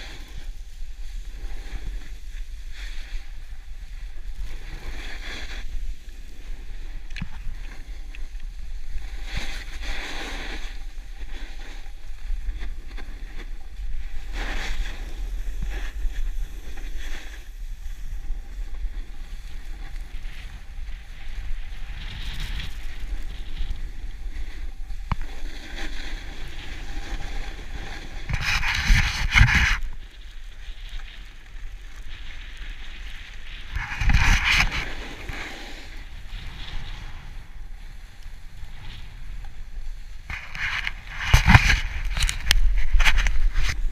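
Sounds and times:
skis scraping snow: 0.0 - 43.9
wind buffeting microphone: 0.0 - 43.9.

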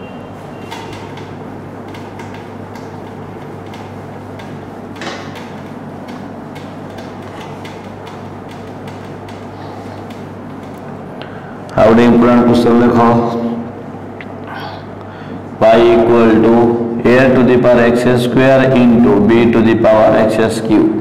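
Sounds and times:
steady low hum: 0.0 - 21.0
cloth wiping a whiteboard: 0.5 - 10.8.

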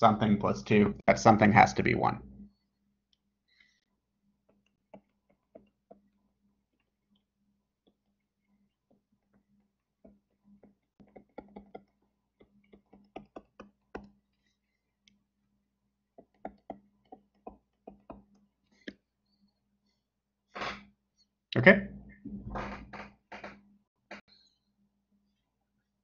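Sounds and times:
stylus tapping on tablet screen: 4.4 - 8.1, 8.7 - 14.4, 16.1 - 19.0.

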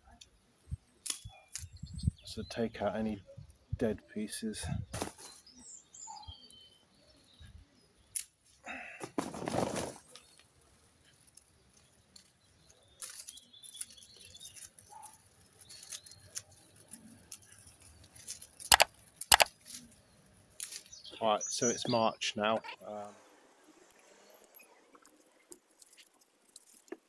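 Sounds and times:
secateurs snipping stems: 1.0 - 1.7
faint bird chirps: 4.8 - 8.2
dry stems and leaves rustling: 8.1 - 21.1, 24.5 - 27.0.

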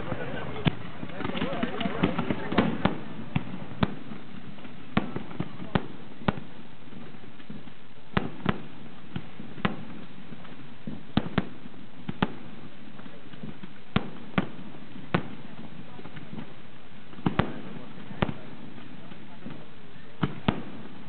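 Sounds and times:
background murmur: 0.0 - 21.0
firework shells bursting: 0.0 - 21.0.

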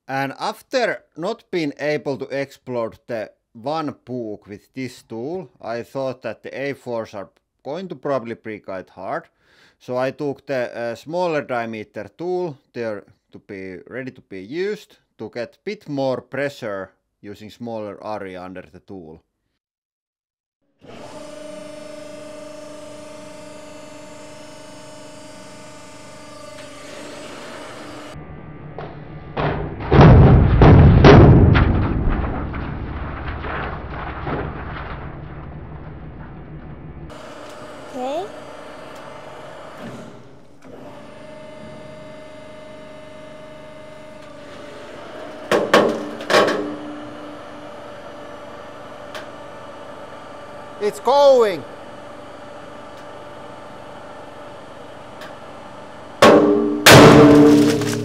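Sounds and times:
hydraulic pump hum and whine: 20.8 - 29.9, 36.6 - 51.0, 51.6 - 57.3
frozen paper cracking: 32.7 - 35.2, 57.4 - 58.0.

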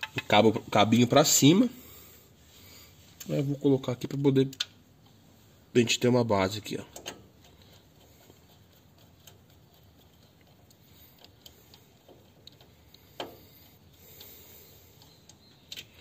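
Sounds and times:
small plastic parts clicking: 15.0 - 16.0.

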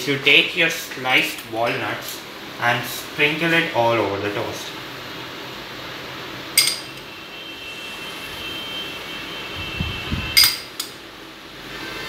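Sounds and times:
metal spoon clinking glass bowl: 6.6 - 7.0, 10.4 - 10.8.

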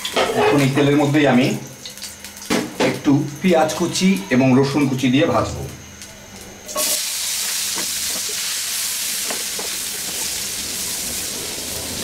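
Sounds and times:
onion sizzling in hot oil: 6.6 - 12.0.

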